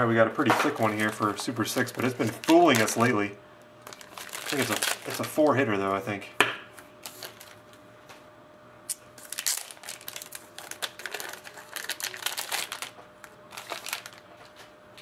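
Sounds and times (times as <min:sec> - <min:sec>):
plastic wrapper crinkling: 0:00.6 - 0:03.2, 0:03.8 - 0:05.6, 0:07.0 - 0:07.7, 0:08.9 - 0:14.6.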